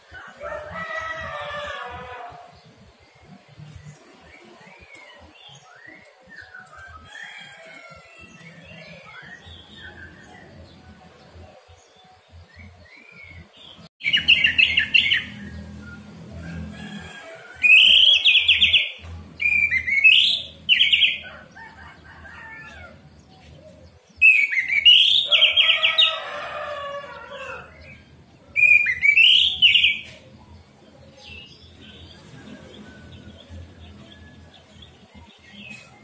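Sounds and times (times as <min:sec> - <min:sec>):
thrush whistling song: 0:17.6 - 0:21.2, 0:24.2 - 0:25.9, 0:28.6 - 0:30.1.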